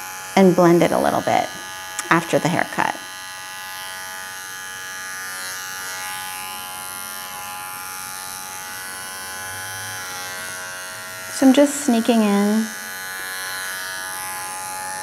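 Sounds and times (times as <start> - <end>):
electric clippers buzzing: 0.0 - 15.0.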